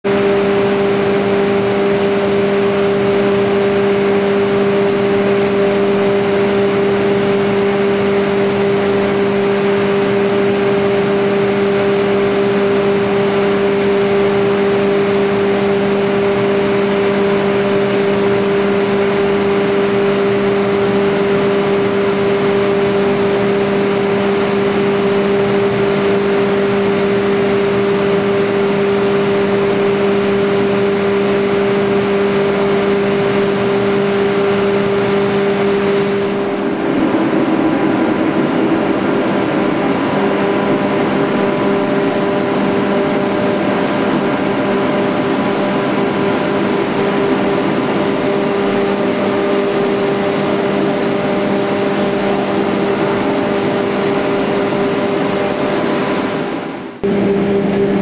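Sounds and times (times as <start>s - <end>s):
machinery drone and hum: 0.0s - 58.0s
mechanical rush: 33.2s - 58.0s.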